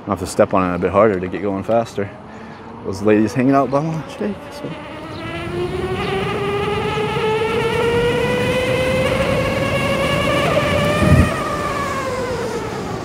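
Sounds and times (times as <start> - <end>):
electric motor whining: 3.4 - 13.0.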